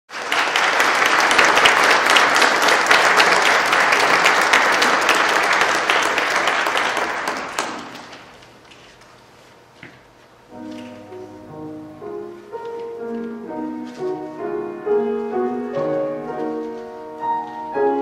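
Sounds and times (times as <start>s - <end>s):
audience applauding: 0.1s - 8.3s.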